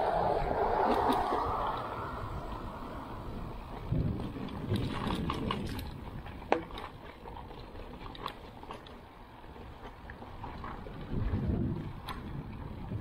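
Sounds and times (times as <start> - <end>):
wind noise on microphone: 0.0 - 13.0
bike rattling and clicking: 3.6 - 13.0.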